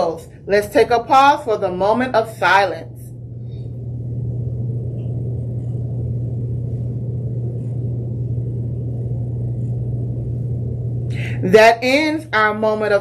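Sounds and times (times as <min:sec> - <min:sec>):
steady low drone: 0:00.0 - 0:13.0.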